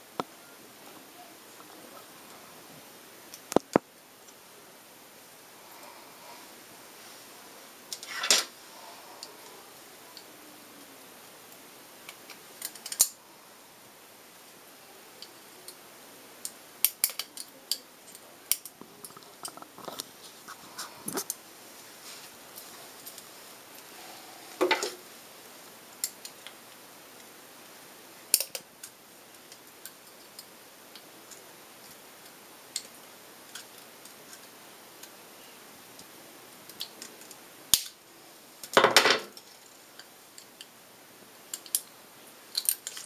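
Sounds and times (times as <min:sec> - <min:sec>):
metal dental instruments clicking: 0:12.6 - 0:13.1.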